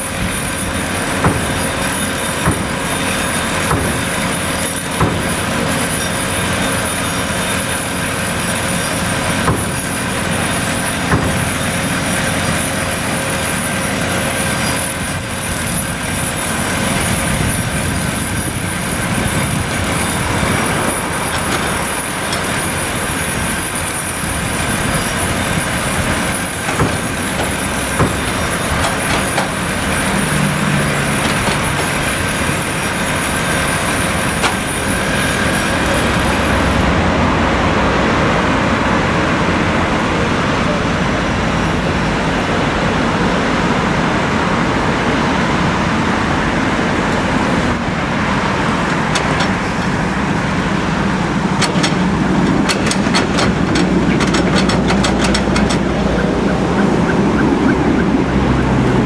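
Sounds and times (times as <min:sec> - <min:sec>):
excavator engine and hydraulics: 0:00.0 - 0:59.0
excavator bucket clanks: 0:26.1 - 0:30.2, 0:31.0 - 0:32.2, 0:48.8 - 0:50.0, 0:51.4 - 0:57.4.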